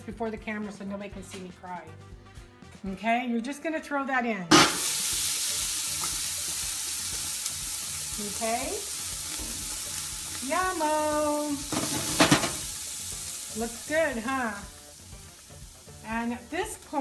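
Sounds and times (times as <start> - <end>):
onion sizzling in hot oil: 4.5 - 17.0.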